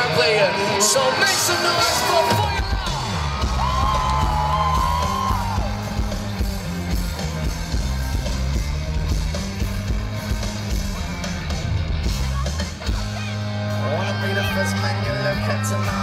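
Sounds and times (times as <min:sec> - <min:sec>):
audience yelling: 0:00.0 - 0:08.6
live rock band: 0:00.0 - 0:16.0
heavy bass guitar: 0:01.6 - 0:16.0.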